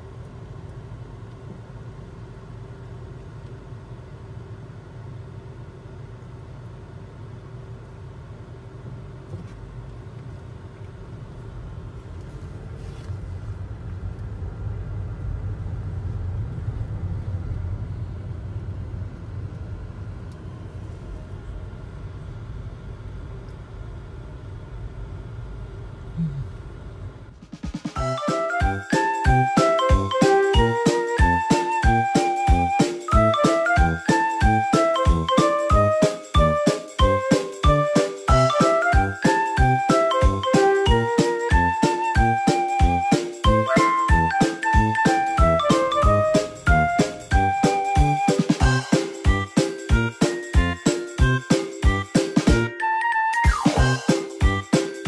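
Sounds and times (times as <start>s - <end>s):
faint steady hum: 0.0s - 33.4s
engine and road rumble: 0.0s - 52.7s.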